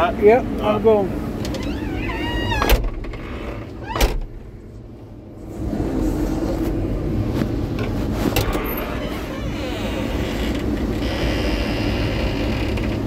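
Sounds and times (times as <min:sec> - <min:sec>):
diesel engine running: 0:04.3 - 0:13.0.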